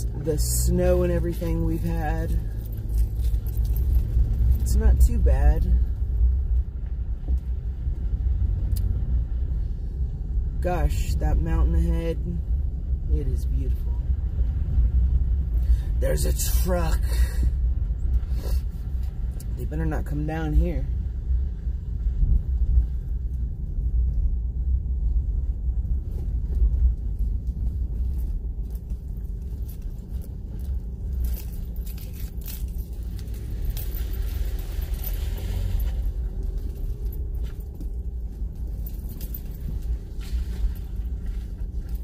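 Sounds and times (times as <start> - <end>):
rattles and jangling: 0.0 - 6.6, 26.0 - 42.0
tyres rumbling on dirt road: 0.0 - 42.0.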